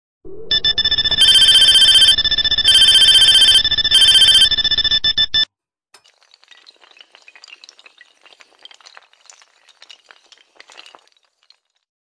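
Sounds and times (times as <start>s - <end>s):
electronic ringing tone: 0.3s - 5.5s.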